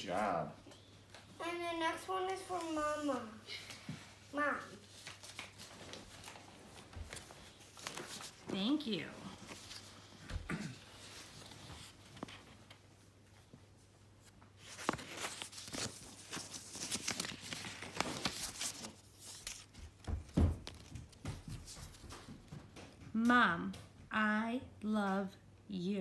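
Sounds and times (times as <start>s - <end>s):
paper crinkling and tearing: 4.8s - 10.2s, 14.6s - 20.0s.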